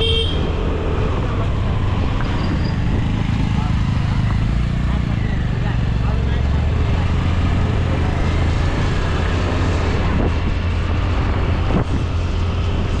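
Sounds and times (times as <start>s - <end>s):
road noise: 0.0s - 13.0s
wind noise: 8.6s - 13.0s.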